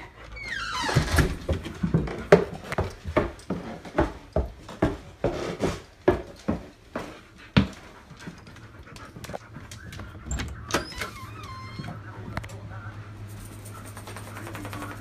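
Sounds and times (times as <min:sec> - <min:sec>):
dog panting: 0:06.9 - 0:10.4.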